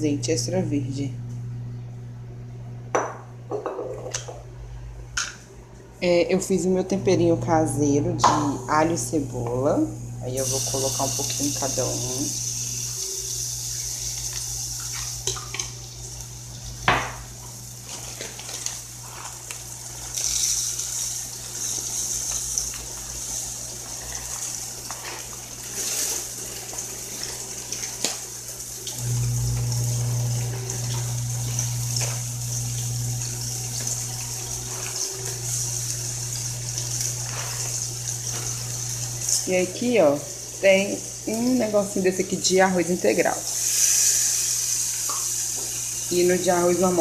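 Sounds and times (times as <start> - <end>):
low hum: 0.0 - 14.8
seasoning sizzling in hot oil: 10.4 - 30.4, 31.0 - 39.5, 43.4 - 47.0.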